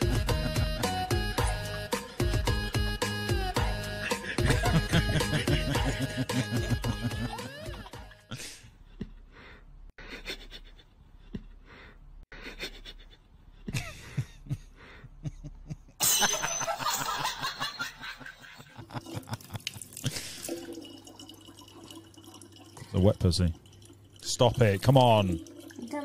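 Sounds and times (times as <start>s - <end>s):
man stifling laughter: 4.0s - 8.6s, 12.4s - 20.3s.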